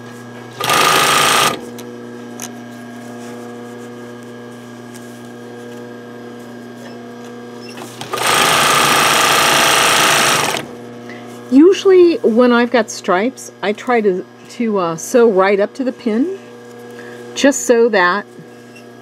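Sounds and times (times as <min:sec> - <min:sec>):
sewing machine stitching: 0:00.6 - 0:01.6, 0:07.8 - 0:10.7.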